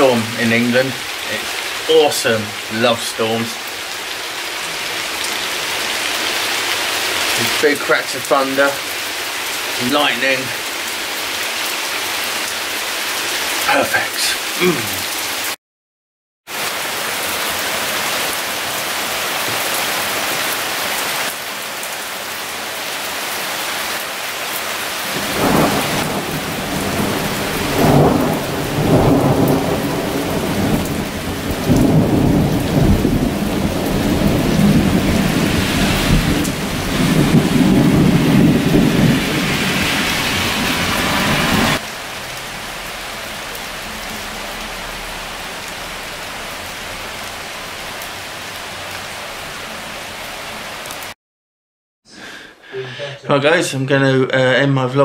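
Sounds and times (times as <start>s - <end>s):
rain falling: 0.0s - 15.6s, 16.5s - 51.2s
thunder rumbling: 25.1s - 41.8s.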